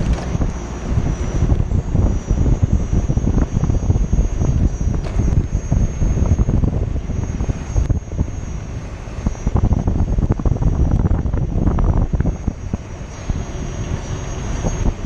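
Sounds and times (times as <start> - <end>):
tyre rumbling over asphalt: 0.0 - 2.5
wind buffeting microphone: 0.0 - 15.0.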